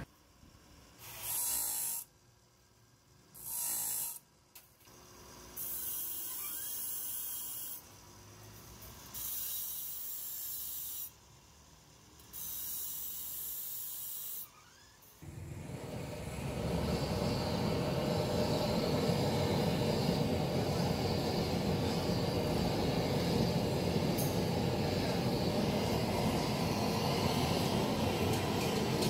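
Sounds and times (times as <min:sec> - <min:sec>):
harsh hissing bursts: 0:15.2 - 0:29.0.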